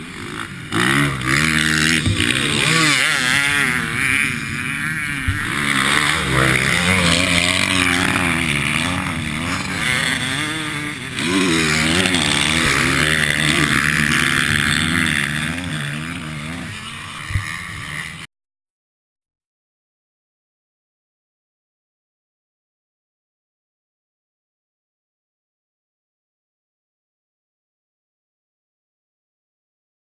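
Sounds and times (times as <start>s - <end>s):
motocross engine revving: 0.0s - 18.3s.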